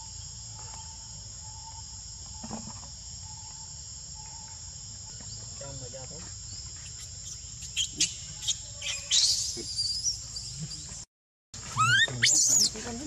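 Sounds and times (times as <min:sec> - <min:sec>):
forest insects droning: 0:00.0 - 0:13.0
baby monkey squealing: 0:07.0 - 0:10.6, 0:11.6 - 0:12.9.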